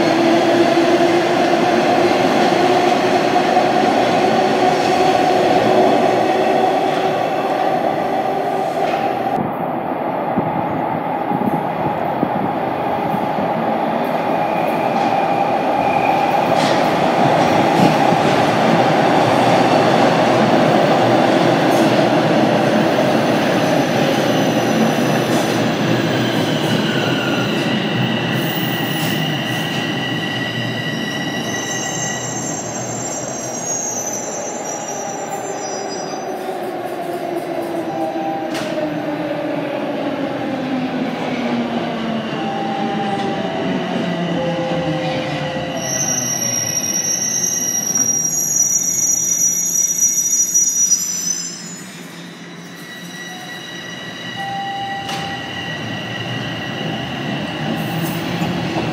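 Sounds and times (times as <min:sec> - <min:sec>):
train wheels rumbling on rails: 0:00.0 - 0:33.6
high wheel squeal: 0:26.9 - 0:36.3, 0:45.6 - 0:58.2.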